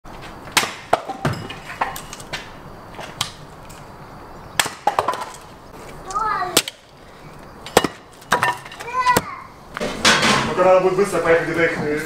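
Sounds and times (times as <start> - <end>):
axe chopping firewood: 0.5 - 2.5, 4.6 - 5.4, 7.7 - 9.3.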